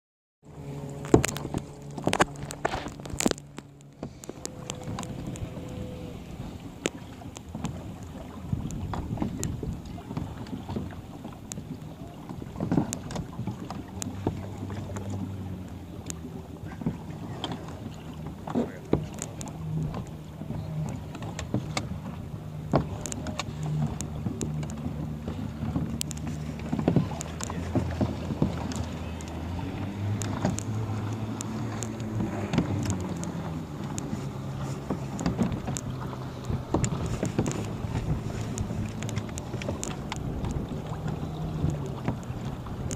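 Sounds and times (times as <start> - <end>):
low steady drone: 0.4 - 8.4
waves lapping against kayak hulls: 0.4 - 42.9
kayak bump: 0.5 - 42.9
wind on microphone: 0.5 - 42.9
small clicks and knocks: 0.8 - 42.9.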